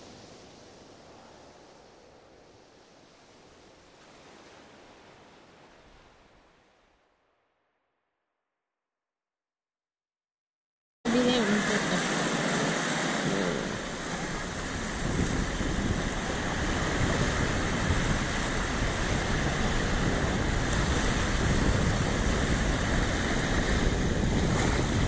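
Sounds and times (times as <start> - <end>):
surf washing: 0.0 - 7.2, 11.1 - 25.0
wind buffeting microphone: 12.1 - 25.0.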